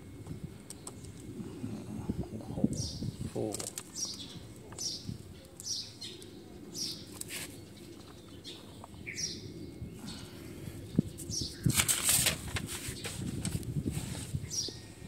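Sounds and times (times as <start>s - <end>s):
rustling and handling noise: 3.2s - 5.6s, 7.0s - 9.0s, 11.0s - 14.6s
bird chirps: 3.9s - 10.3s.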